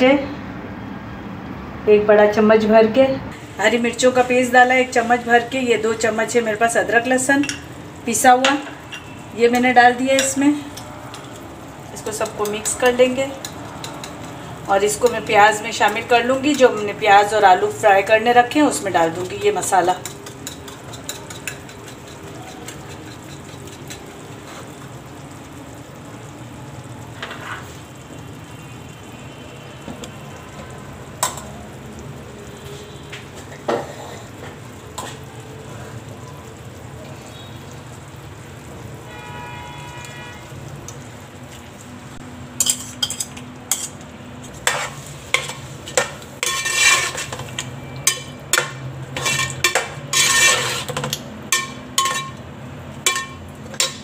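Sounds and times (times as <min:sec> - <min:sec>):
food frying in oil: 0:03.3 - 0:54.0
metal spoon scraping a pot: 0:19.3 - 0:24.8, 0:42.6 - 0:52.4.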